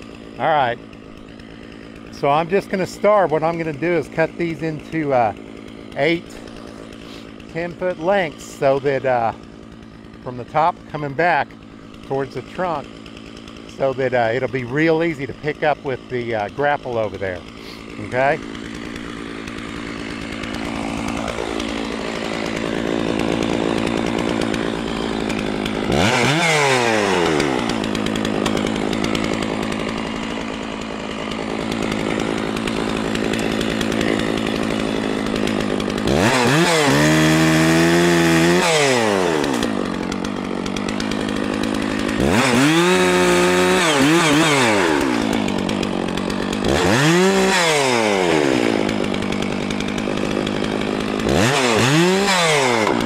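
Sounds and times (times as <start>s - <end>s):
chainsaw idling and revving: 0.0s - 53.0s.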